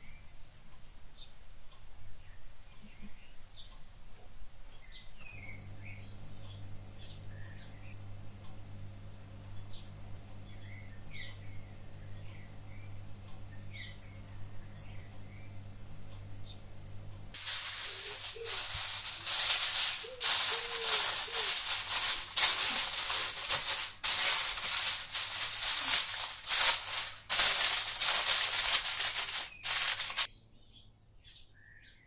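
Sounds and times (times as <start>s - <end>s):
aluminium foil crinkling: 17.4s - 30.3s.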